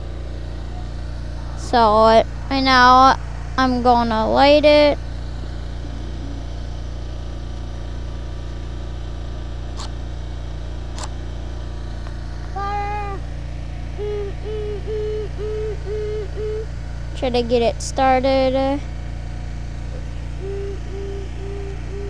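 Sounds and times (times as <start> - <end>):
low hum: 0.0 - 22.0
pitched call: 5.6 - 7.1, 12.5 - 13.3, 13.9 - 16.8, 20.0 - 22.0.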